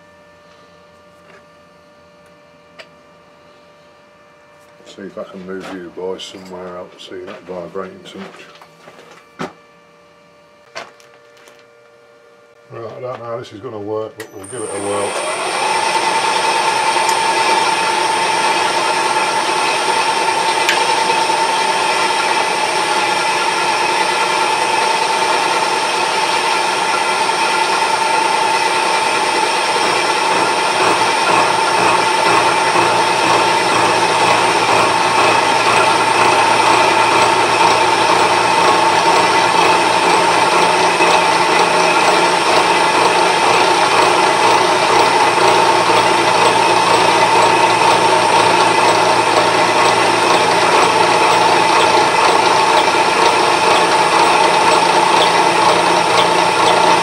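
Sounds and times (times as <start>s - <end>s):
gear cutter machining whine: 14.2s - 57.0s.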